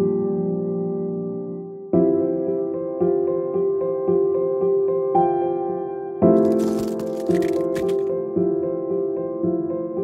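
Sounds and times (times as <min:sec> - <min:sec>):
soft piano music: 0:00.0 - 0:10.0
small clicks and rustles: 0:06.4 - 0:08.1.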